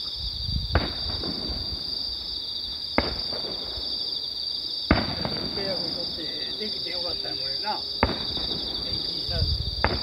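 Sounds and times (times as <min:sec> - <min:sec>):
insects chirring: 0:00.0 - 0:10.0
fireworks bursting with bangs: 0:00.6 - 0:02.2, 0:02.9 - 0:04.2, 0:04.8 - 0:06.7, 0:08.0 - 0:10.0.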